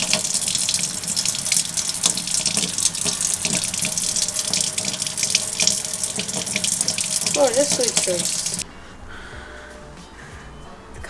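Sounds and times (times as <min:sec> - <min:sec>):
small water splashes: 0:00.0 - 0:08.6.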